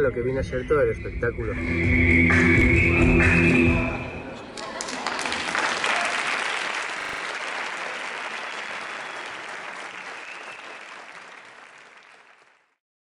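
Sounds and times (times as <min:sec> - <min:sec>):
audience applauding: 0:04.5 - 0:12.8.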